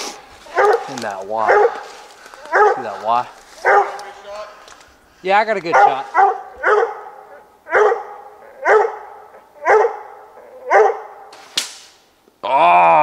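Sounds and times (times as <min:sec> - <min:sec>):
dog barking: 0:00.5 - 0:04.3, 0:05.7 - 0:11.3
sharp crack: 0:11.3 - 0:12.1.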